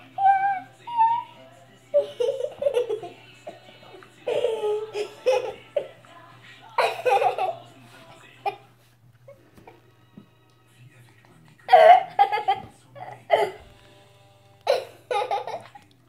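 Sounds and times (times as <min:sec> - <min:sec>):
young child giggling: 0:14.7 - 0:15.8.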